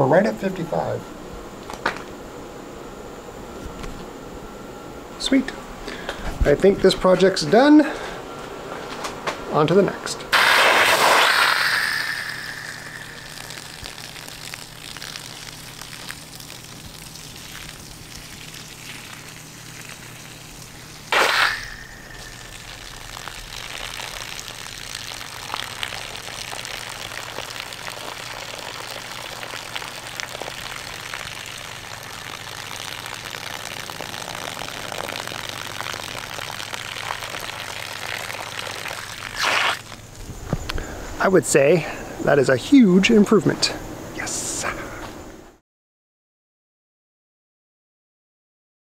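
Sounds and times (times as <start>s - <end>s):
hose water splashing on lawn: 10.3s - 40.2s
sudden water rushes: 10.4s - 15.8s.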